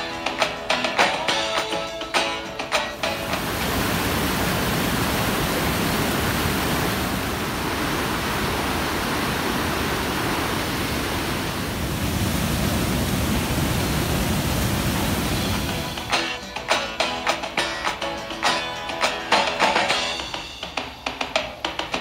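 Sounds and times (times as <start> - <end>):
waterfall rushing: 3.0 - 16.5.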